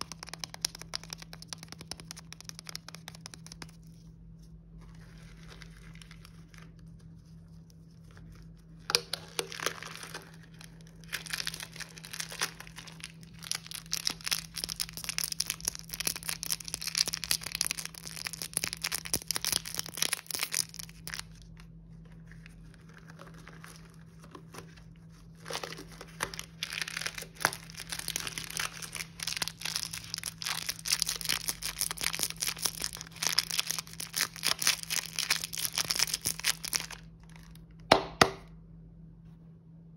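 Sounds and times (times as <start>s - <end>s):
candy wrappers crinkling: 0.0s - 37.8s.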